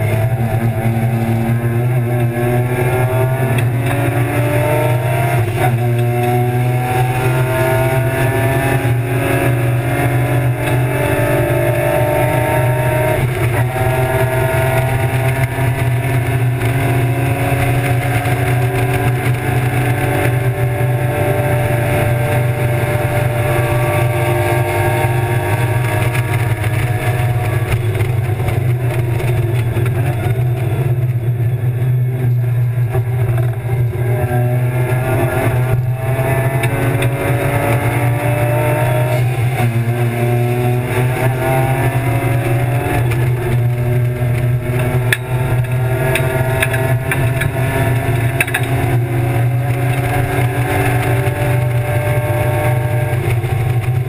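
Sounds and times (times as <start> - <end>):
race car engine at high revs: 0.0 - 54.0.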